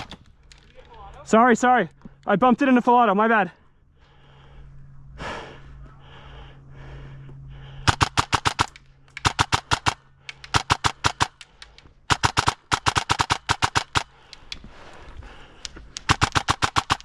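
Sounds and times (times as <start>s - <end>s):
low steady hum: 0.0s - 17.0s
airsoft gun firing bursts: 7.9s - 14.3s, 15.9s - 17.0s.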